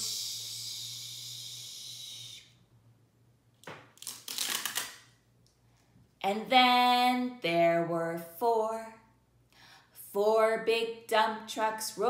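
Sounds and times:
woman hissing shhh: 0.0s - 2.5s
paper crinkling and tearing: 4.0s - 5.0s.

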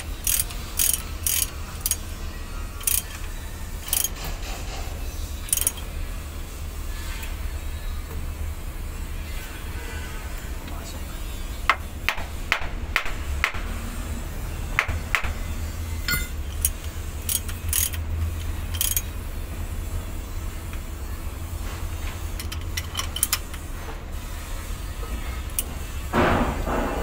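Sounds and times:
steady low hum: 0.0s - 27.0s
metallic clinks of ratchet wrench: 0.2s - 2.0s, 2.7s - 4.2s, 5.2s - 5.9s, 16.1s - 19.1s.

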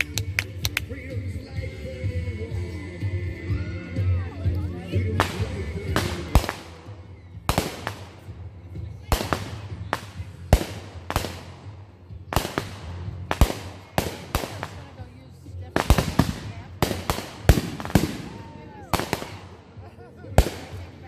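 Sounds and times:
fireworks bangs and pops: 5.2s - 8.3s, 9.0s - 11.7s, 12.3s - 15.0s, 15.6s - 19.6s, 20.3s - 20.9s.

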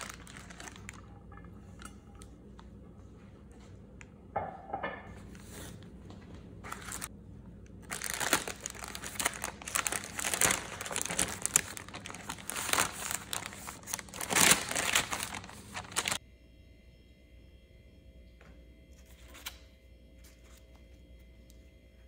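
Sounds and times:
parchment paper crinkling: 0.0s - 1.2s, 6.6s - 7.1s, 7.7s - 16.2s.

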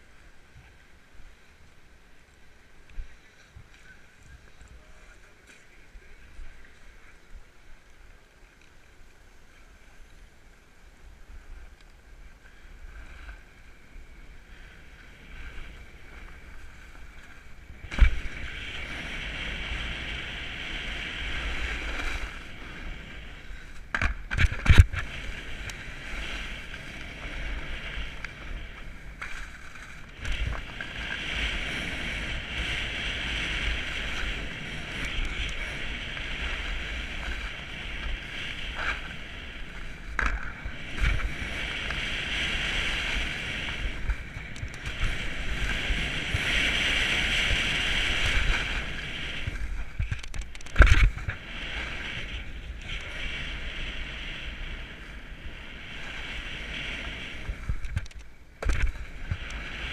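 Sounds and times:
wind on microphone: 11.1s - 59.9s
snowboard scraping on snow: 12.3s - 59.9s.

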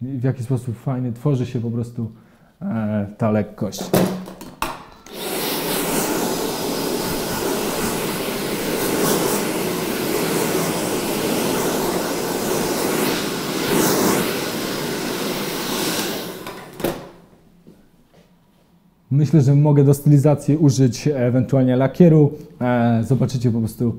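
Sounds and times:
hair dryer blowing: 5.1s - 17.2s.

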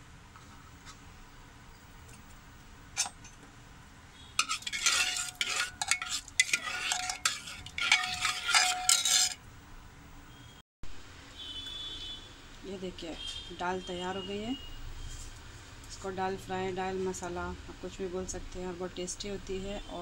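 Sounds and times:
metal spoon scraping pot: 4.4s - 9.4s.

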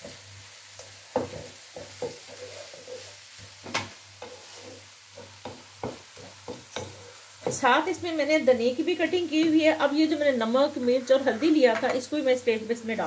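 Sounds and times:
vegetables sizzling in a wok: 0.0s - 13.0s
spatula knocking against a pan: 5.1s - 7.7s.

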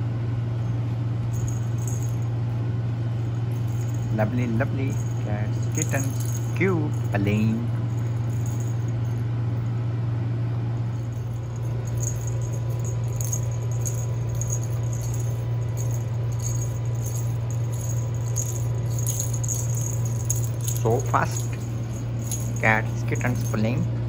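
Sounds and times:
steady low hum: 0.0s - 24.0s
cat toy jingling and rattling: 1.3s - 9.7s, 10.8s - 24.0s.

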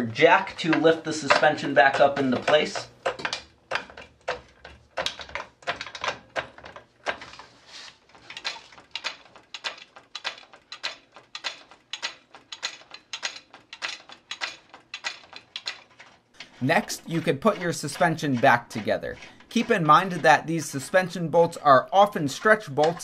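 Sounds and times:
jack clicking and clunking: 0.0s - 23.0s.

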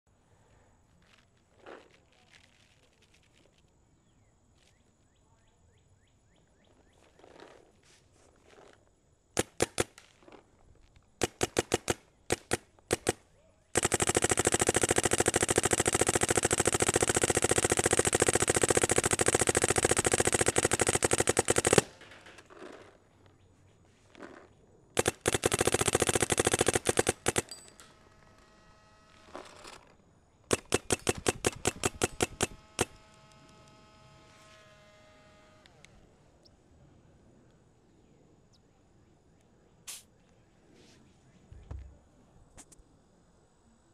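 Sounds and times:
faint steady whine: 0.1s - 43.9s
paintball marker firing: 9.4s - 10.4s, 11.2s - 13.2s, 13.8s - 22.2s, 25.0s - 27.7s, 30.5s - 34.4s, 39.9s - 40.1s.

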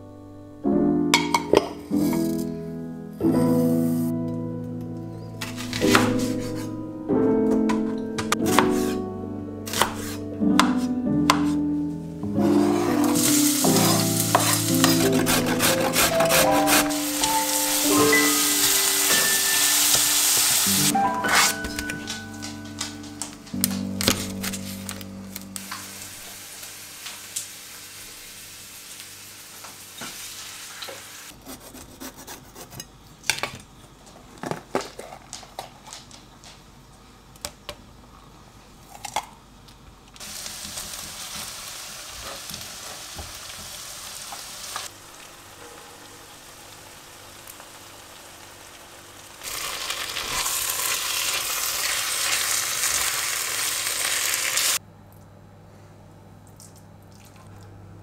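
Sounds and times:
wooden spoon stirring: 12.4s - 17.4s
kitchen utensils clinking: 12.4s - 24.9s
meat and rice sizzling in a pan: 13.1s - 15.1s, 16.7s - 21.0s, 25.6s - 31.3s, 40.2s - 54.8s.

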